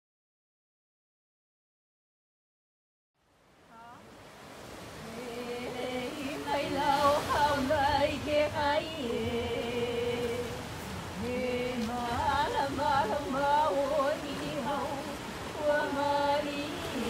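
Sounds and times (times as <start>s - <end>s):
surf washing: 3.2s - 17.0s
woman chanting long notes: 11.2s - 17.0s.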